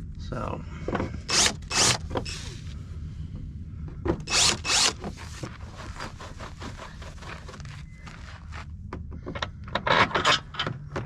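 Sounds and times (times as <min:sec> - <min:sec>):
cordless drill cutting plastic: 0:01.3 - 0:02.5, 0:04.3 - 0:05.1.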